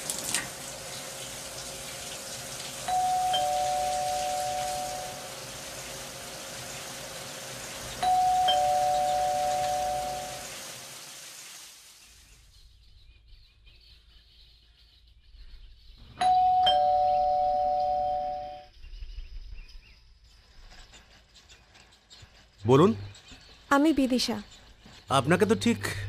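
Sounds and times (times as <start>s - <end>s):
two-tone doorbell chime: 2.9s - 5.4s, 8.0s - 10.5s, 16.2s - 18.7s.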